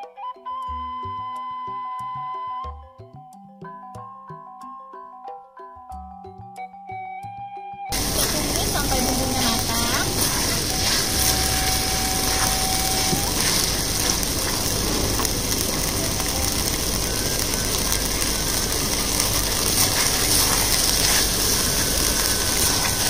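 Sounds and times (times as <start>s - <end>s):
paste sizzling in hot oil: 7.9s - 23.0s
wooden spatula scraping wok: 7.9s - 23.0s.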